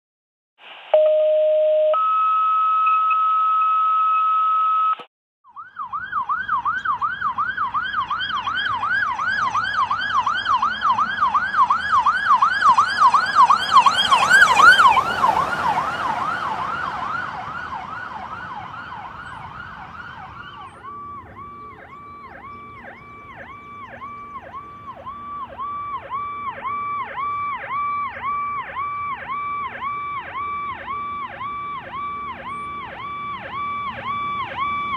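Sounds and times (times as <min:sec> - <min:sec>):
two-tone dispatch alert beeps: 0:00.9 - 0:05.1
fire engine siren sweeping: 0:05.5 - 0:34.9
electronic siren sweeping rapidly: 0:05.6 - 0:34.9.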